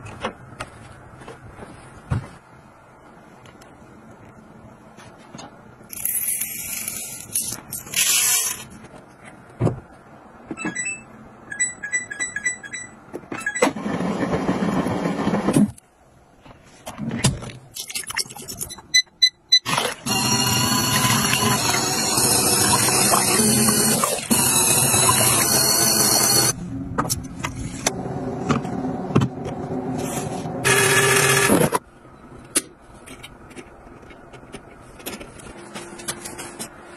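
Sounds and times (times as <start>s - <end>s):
short electronic beeps: 18.7s - 19.7s
washing machine motor humming: 19.7s - 26.6s.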